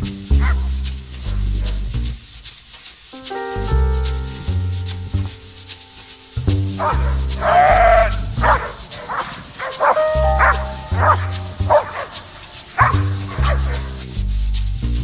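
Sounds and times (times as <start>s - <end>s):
background music with low notes: 0.0s - 15.0s
dog barking sharply: 6.8s - 14.0s.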